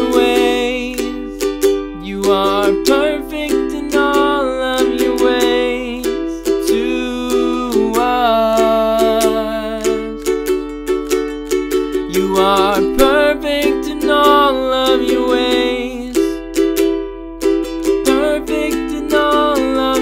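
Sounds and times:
man singing: 0.0s - 10.5s, 12.0s - 16.6s, 17.9s - 20.0s
guitar strummed: 9.3s - 20.0s.

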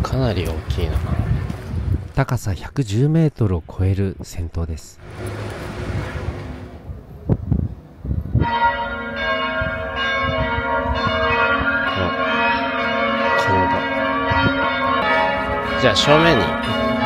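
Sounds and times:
low thumps: 5.0s - 8.6s
church bells ringing: 8.4s - 17.0s.

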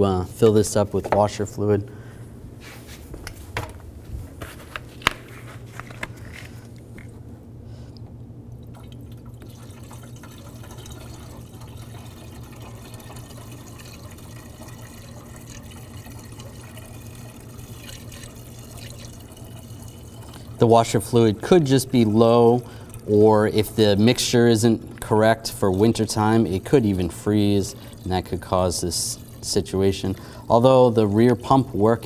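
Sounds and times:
liquid pouring from a jug: 8.5s - 32.0s.

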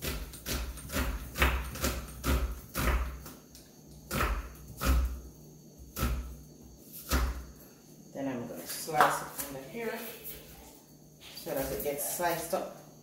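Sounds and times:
knife chopping on wooden board: 0.0s - 3.4s, 4.1s - 5.2s, 7.0s - 7.4s.

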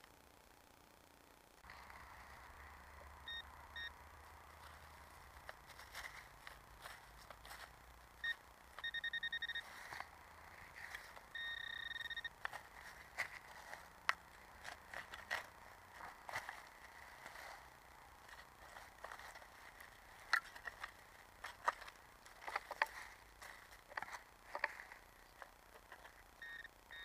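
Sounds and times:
digging in soil and leaves: 1.6s - 26.7s
pinpointer electronic beeps: 3.2s - 4.0s, 8.2s - 9.8s, 11.3s - 12.4s, 26.4s - 27.0s.

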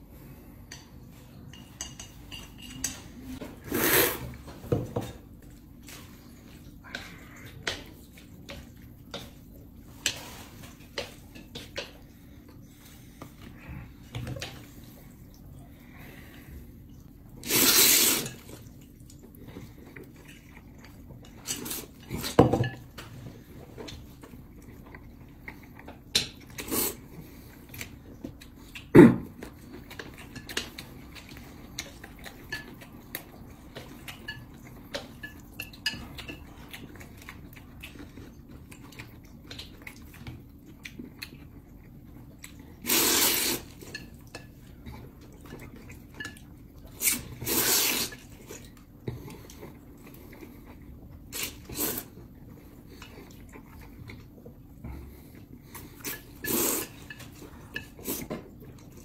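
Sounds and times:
noodle slurps: 17.4s - 18.4s, 42.8s - 43.7s, 47.0s - 48.3s.

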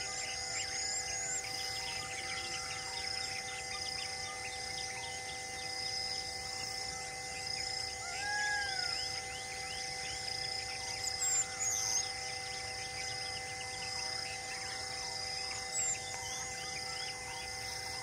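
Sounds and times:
faint steady tones: 0.0s - 18.0s
insects trilling: 0.0s - 18.0s
whistled bird call: 7.4s - 13.9s.

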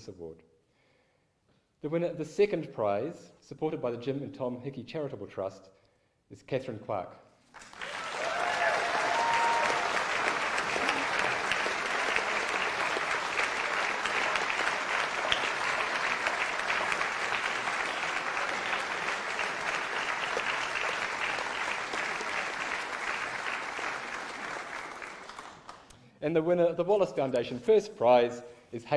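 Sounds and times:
audience applauding: 7.5s - 26.0s.

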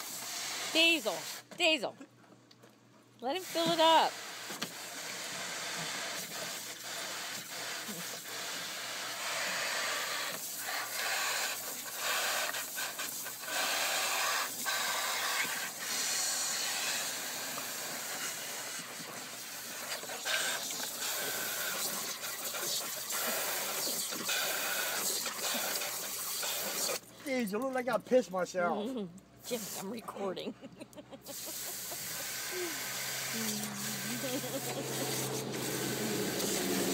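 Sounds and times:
hose water splashing into pool: 0.0s - 1.5s, 3.3s - 27.1s, 29.4s - 30.0s, 31.3s - 36.9s
dog biting and lapping water: 4.7s - 27.1s, 31.3s - 36.9s.

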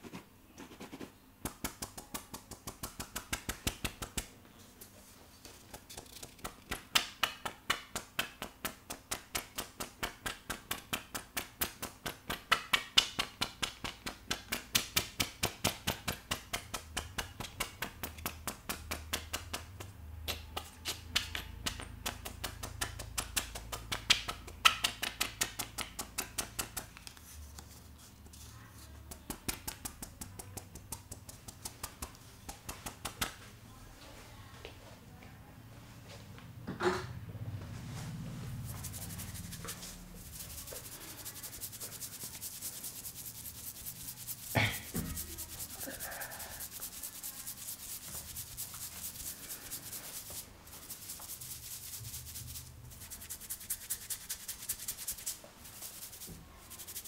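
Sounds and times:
brush scratching over hair: 38.0s - 57.0s.

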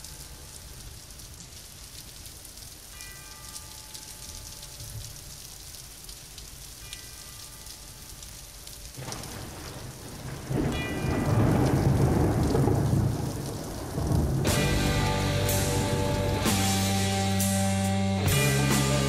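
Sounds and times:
steady rain: 0.0s - 19.0s
thunder rumbling: 9.0s - 17.2s.

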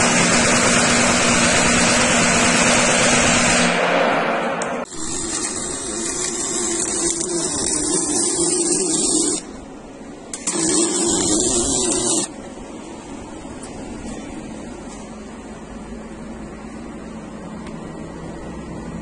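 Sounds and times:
power tool running: 0.0s - 3.8s, 4.6s - 9.6s, 10.3s - 12.4s.

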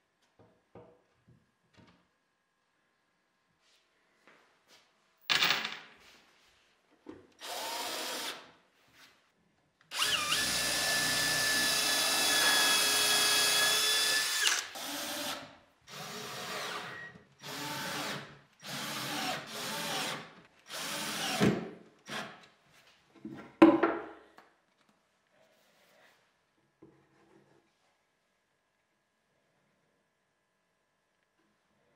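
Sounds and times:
cordless drill driving screws: 7.4s - 8.4s, 9.9s - 22.3s.

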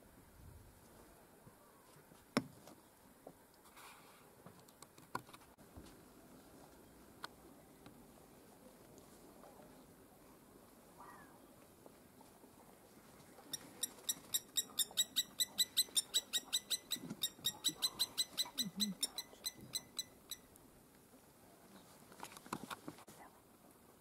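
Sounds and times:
animal clicking calls: 13.5s - 20.4s.

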